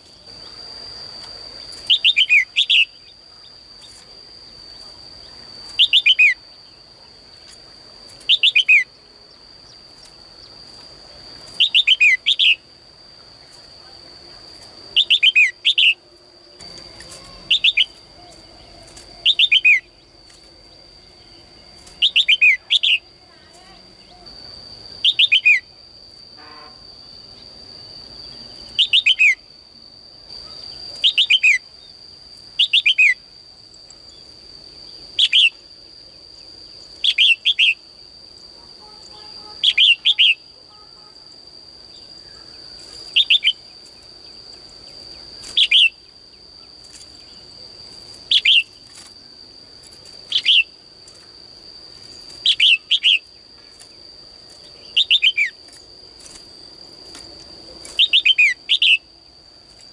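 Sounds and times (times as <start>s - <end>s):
steady high-pitched whine: 0.0s - 59.9s
caged bird chirping: 1.6s - 3.6s, 4.7s - 7.4s, 8.1s - 8.9s, 11.5s - 12.7s, 15.0s - 20.2s, 21.2s - 23.1s, 25.0s - 25.7s, 28.2s - 29.4s, 30.4s - 31.6s, 32.6s - 33.2s, 35.2s - 35.6s, 36.9s - 37.8s, 39.0s - 40.5s, 42.8s - 46.1s, 48.3s - 49.0s, 50.0s - 51.2s, 52.1s - 53.9s, 54.6s - 56.4s, 57.8s - 59.1s.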